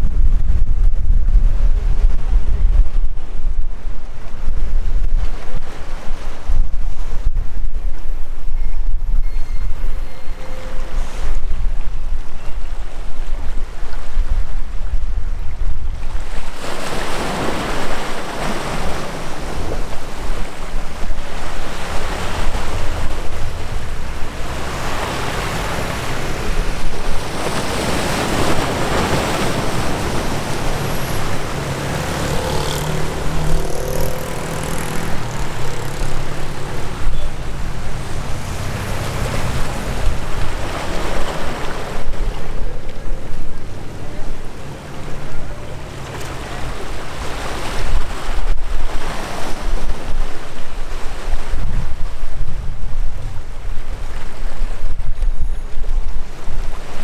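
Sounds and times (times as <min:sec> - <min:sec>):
wind buffeting microphone: 0:00.0 - 0:57.0
rushing water: 0:01.4 - 0:57.0.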